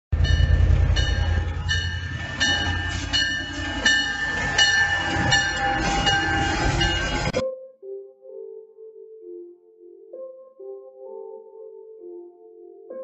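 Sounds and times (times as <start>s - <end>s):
diesel locomotive rumble: 0.1s - 7.4s
locomotive bell ringing: 0.2s - 7.4s.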